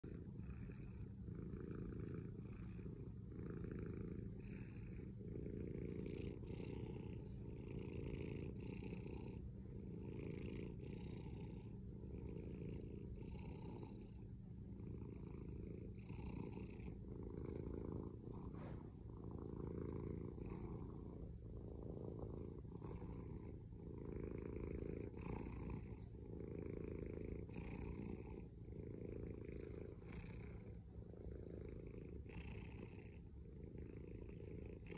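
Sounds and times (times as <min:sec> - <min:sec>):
cat purring: 0:00.0 - 0:34.9.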